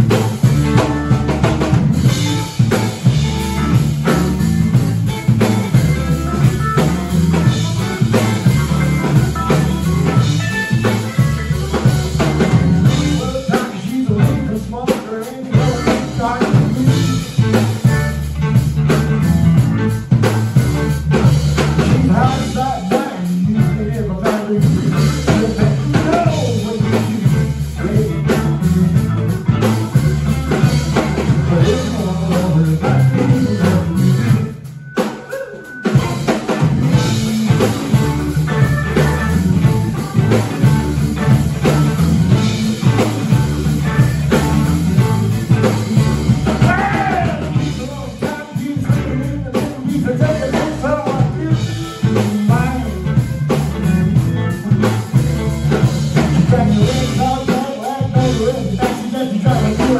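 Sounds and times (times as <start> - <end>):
bass guitar: 0.0 - 59.9
drum kit: 0.0 - 59.9
electric guitar: 0.0 - 59.9
keyboards: 0.0 - 59.9
man singing lead vocal: 12.8 - 17.8, 21.8 - 29.0, 30.7 - 35.8, 46.4 - 53.6, 56.2 - 59.9.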